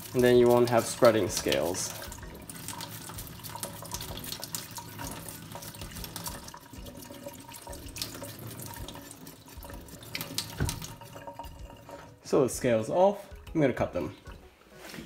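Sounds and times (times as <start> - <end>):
tap running into a metal sink: 0.2 - 12.2.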